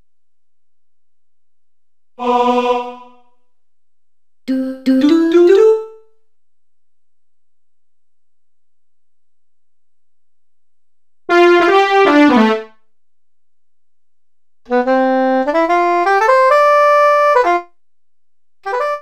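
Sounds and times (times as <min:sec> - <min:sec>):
sampled saxophone and brass notes: 0:11.3 - 0:12.8, 0:14.7 - 0:17.7, 0:18.6 - 0:19.0.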